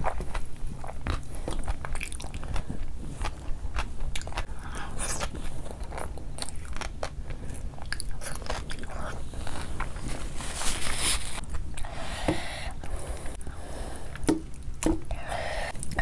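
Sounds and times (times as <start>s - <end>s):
person chewing food: 0.0s - 10.5s.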